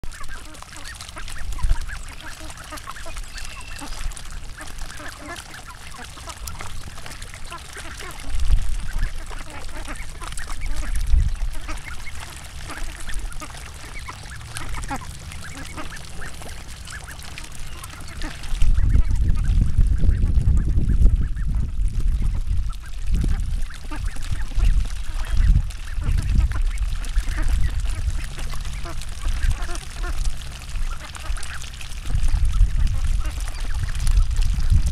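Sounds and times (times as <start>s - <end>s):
ducks quacking: 0.0s - 34.8s
low rumble on microphone: 0.0s - 34.9s.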